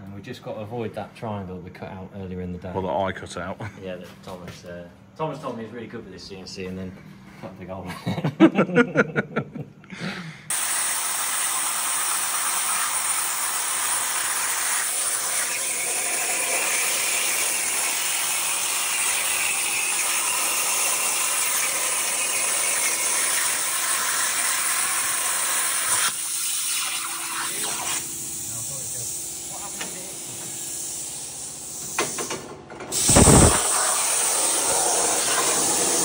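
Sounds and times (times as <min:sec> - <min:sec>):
plasma cutter hissing: 0:10.5 - 0:36.0.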